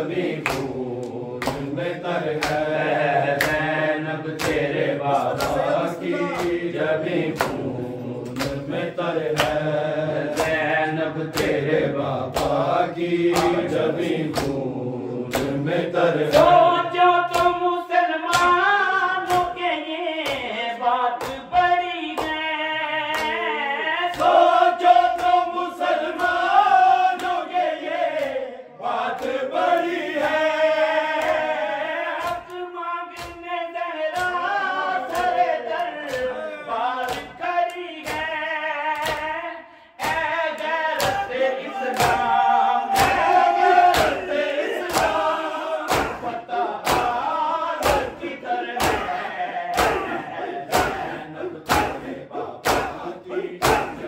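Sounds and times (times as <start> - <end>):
men chanting a lament: 0.0 - 54.0
hands slapping chests: 0.1 - 14.7, 15.3 - 16.6, 17.3 - 17.6, 18.3 - 18.6, 19.2 - 19.6, 21.2 - 21.5, 23.1 - 23.4, 24.1 - 26.5, 27.1 - 28.4, 29.1 - 31.5, 33.2 - 33.5, 34.1 - 36.4, 37.0 - 38.3, 39.0 - 39.3, 40.0 - 54.0.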